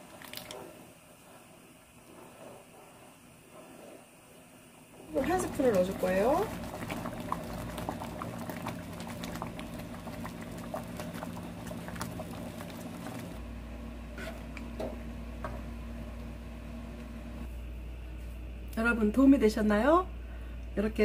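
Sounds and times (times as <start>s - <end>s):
porridge bubbling and popping: 0.0s - 13.5s
wooden spoon stirring: 5.0s - 13.4s.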